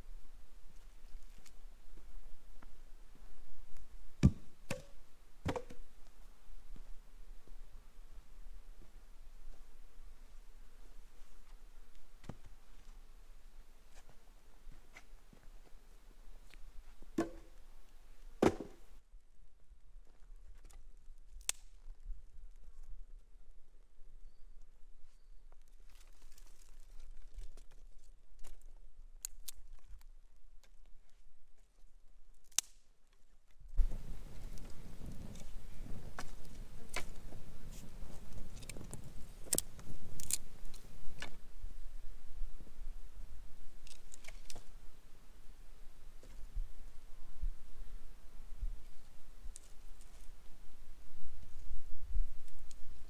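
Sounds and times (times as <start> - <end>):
firewood knocking: 4.2 - 5.8, 17.2 - 17.5, 18.4 - 18.8
dry sticks snapping: 21.4 - 21.8, 29.2 - 30.1, 32.4 - 32.8, 38.3 - 41.3, 43.8 - 44.7.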